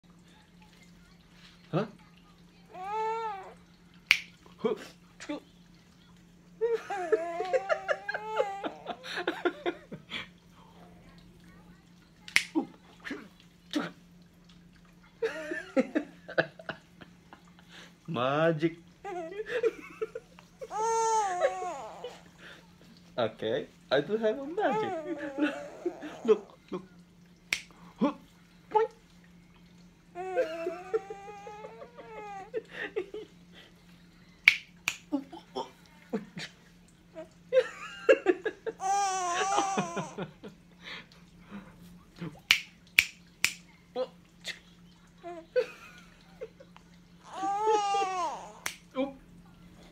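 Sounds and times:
finger snaps: 0:04.1 - 0:04.4, 0:12.3 - 0:12.6, 0:27.5 - 0:27.8, 0:34.4 - 0:35.1, 0:42.5 - 0:43.7, 0:48.6 - 0:48.9
baby squealing and cooing: 0:20.6 - 0:22.2, 0:24.7 - 0:26.5, 0:30.2 - 0:32.6, 0:38.8 - 0:40.2, 0:47.2 - 0:48.7.

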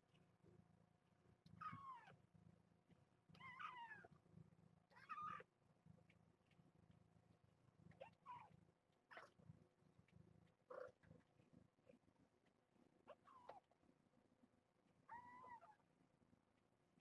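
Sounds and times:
cat meowing faintly: 0:15.1 - 0:15.8.

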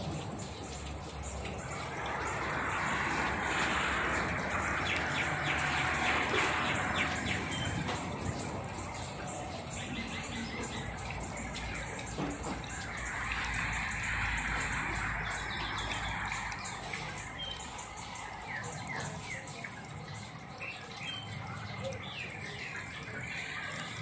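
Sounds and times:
steady rain: 0:00.0 - 0:24.0
water dripping and trickling: 0:00.0 - 0:24.0.

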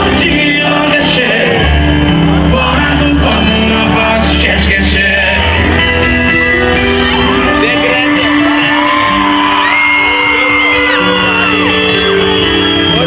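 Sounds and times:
crowd singing along: 0:00.0 - 0:13.0
live piano chords: 0:00.0 - 0:13.0
crowd shouting and whooping: 0:04.7 - 0:13.0
high screams: 0:05.5 - 0:13.0.

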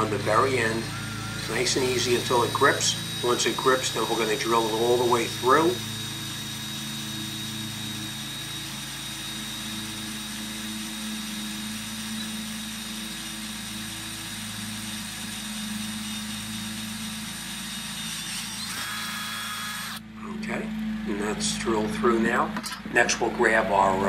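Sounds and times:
power drill boring: 0:00.0 - 0:20.1.

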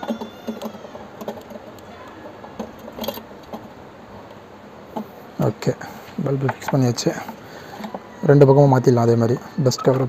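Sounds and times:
small clicks and rattles: 0:00.0 - 0:05.2.

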